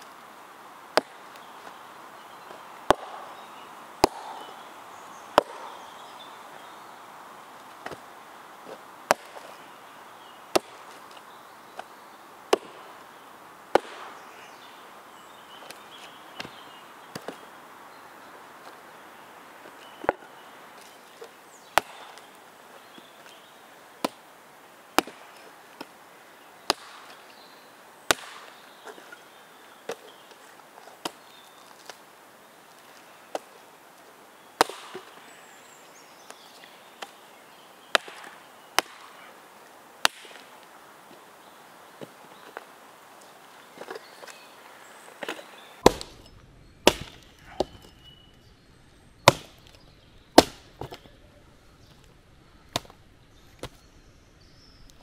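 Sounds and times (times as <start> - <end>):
axe chopping wood: 0.9 - 1.5, 2.8 - 3.4, 4.0 - 4.6, 5.4 - 5.8, 8.7 - 9.6, 10.5 - 11.2, 12.5 - 13.1, 13.7 - 14.5, 16.4 - 17.4, 21.7 - 22.3, 24.0 - 24.2, 25.0 - 25.9, 26.7 - 27.2, 28.1 - 29.2, 34.6 - 35.2, 37.9 - 39.3, 40.0 - 40.6, 45.2 - 48.1, 49.2 - 49.8, 50.4 - 51.1, 52.7 - 53.0.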